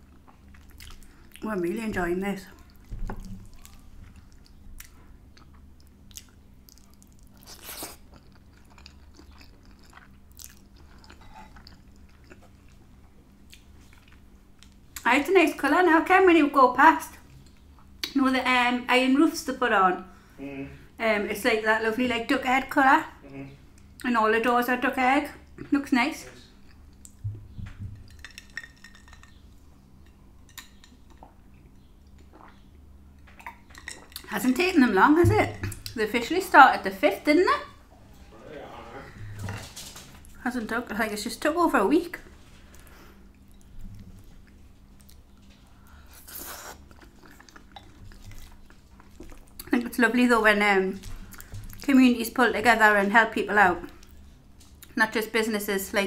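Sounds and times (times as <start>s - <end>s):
chewing food: 0.0s - 1.5s, 2.5s - 14.8s, 30.5s - 34.3s, 42.2s - 49.9s, 50.9s - 52.0s
person eating and drinking: 2.6s - 12.8s, 32.1s - 34.3s, 45.9s - 49.7s.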